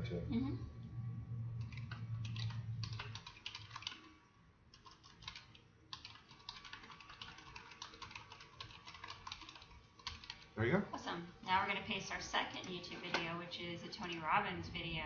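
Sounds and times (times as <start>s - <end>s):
computer keyboard typing: 1.6s - 10.6s, 12.1s - 14.4s.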